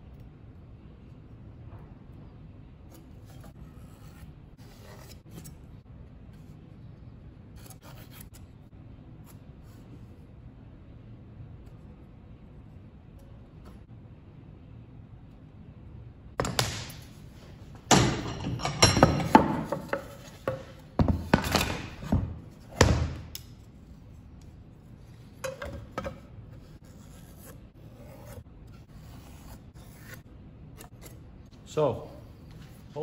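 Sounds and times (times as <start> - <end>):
wood and metal scraping on workbench: 17.9 - 22.3.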